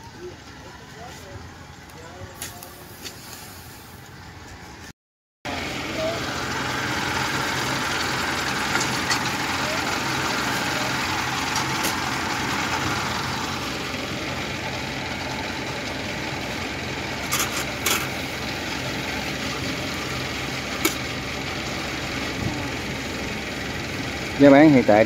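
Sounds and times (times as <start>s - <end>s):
small engine idling: 5.5s - 25.0s.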